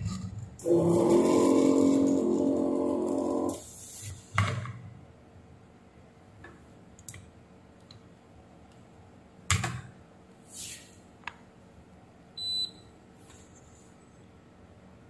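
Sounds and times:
multimeter short high beep: 12.4 - 12.8.

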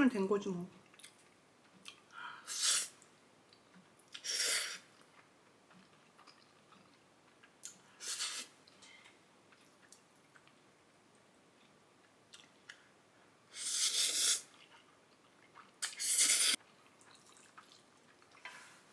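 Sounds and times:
faint chewing: 0.7 - 13.0, 13.6 - 18.9
person slurping noodles: 2.5 - 3.0, 4.1 - 4.9, 8.0 - 8.6, 13.5 - 14.6, 15.8 - 16.6.

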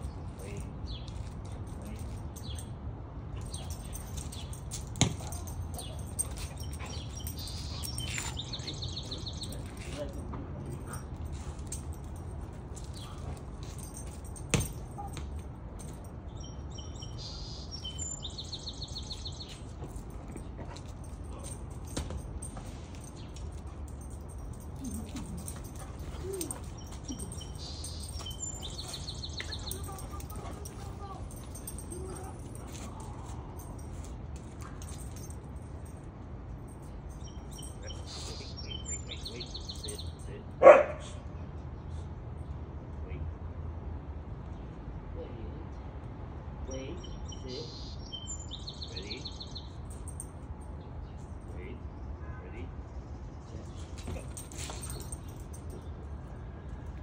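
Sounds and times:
small birds chirping: 3.4 - 11.1, 16.3 - 22.0, 23.0 - 33.9, 36.8 - 40.4, 46.7 - 50.2.

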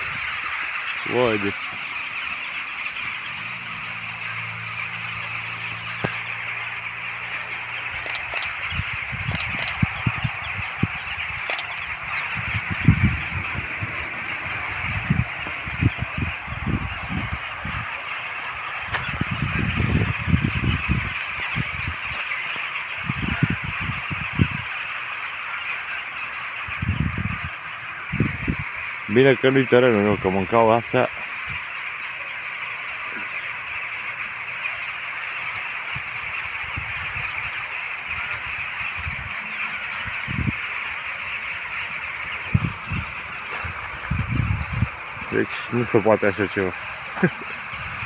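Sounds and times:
rooks cawing: 0.0 - 48.0.

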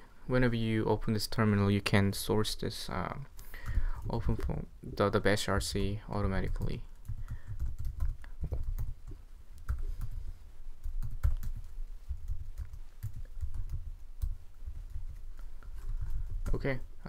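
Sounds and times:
keyboard typing: 6.4 - 10.2, 10.8 - 16.8.

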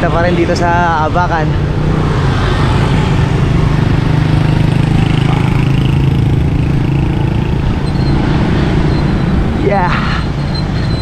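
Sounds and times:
road traffic: 0.0 - 11.0
vehicle engine running: 2.7 - 11.0.

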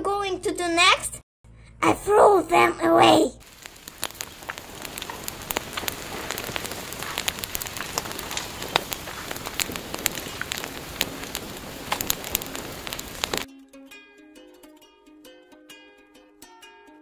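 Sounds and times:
fire crackling and hissing: 2.4 - 13.5.

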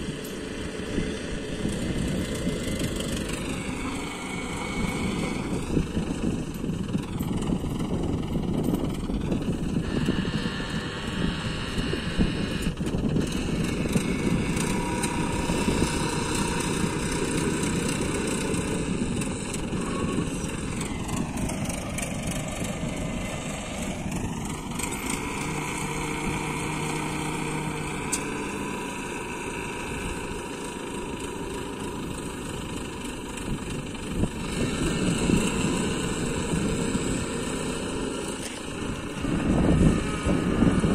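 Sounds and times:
crane engine running: 0.0 - 40.9.

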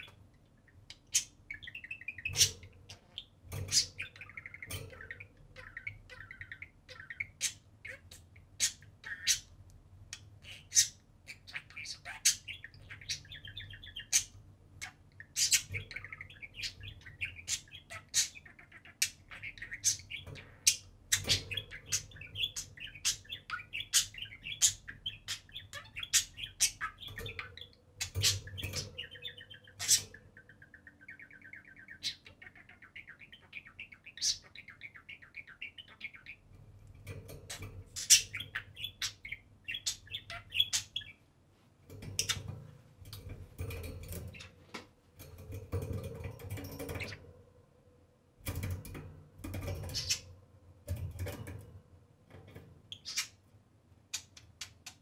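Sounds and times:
budgerigars warbling: 0.8 - 9.5, 10.4 - 36.4, 37.4 - 41.2.

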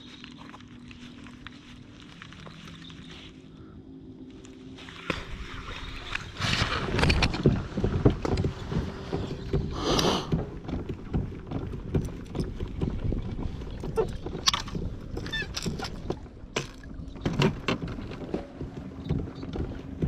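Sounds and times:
wind rumble on microphone: 4.6 - 20.0
gear knocking against kayak: 6.5 - 20.0.

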